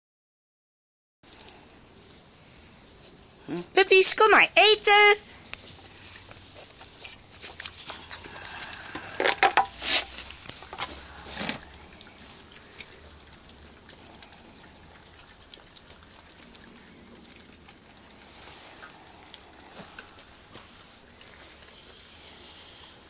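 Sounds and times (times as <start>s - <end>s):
puppies eating clicks: 5.4s - 23.0s.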